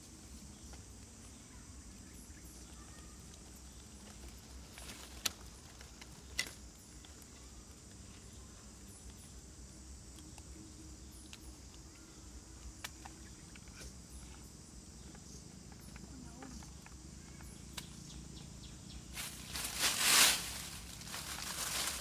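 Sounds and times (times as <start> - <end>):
faint forest ambience: 0.0 - 22.0
sticks and leaves clicking: 2.9 - 8.3, 19.2 - 22.0.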